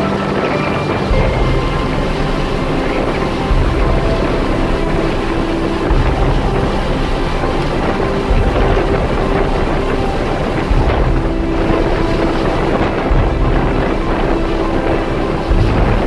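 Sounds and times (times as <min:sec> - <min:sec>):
motorboat engine and wake: 0:00.0 - 0:16.0
wind buffeting microphone: 0:00.0 - 0:16.0.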